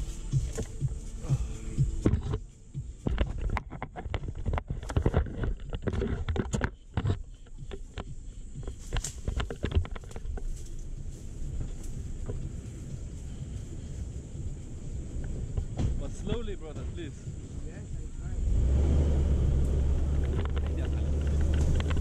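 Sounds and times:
knocks and rubbing on microphone: 0:00.0 - 0:01.1, 0:01.8 - 0:13.9
vehicle rumbling on rough track: 0:00.0 - 0:22.0.

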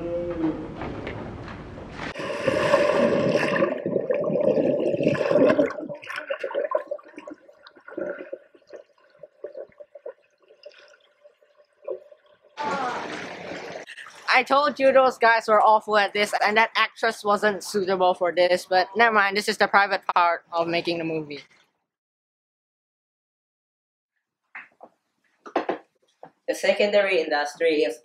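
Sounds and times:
person jumping into pool: 0:02.0 - 0:11.0, 0:11.9 - 0:14.3
muffled underwater splashing: 0:02.0 - 0:14.7
underwater rushing bubbling: 0:02.2 - 0:14.4.

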